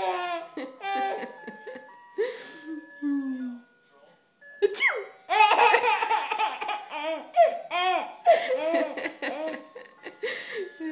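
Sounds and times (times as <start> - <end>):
baby laughing: 0.0 - 1.4, 5.3 - 9.9.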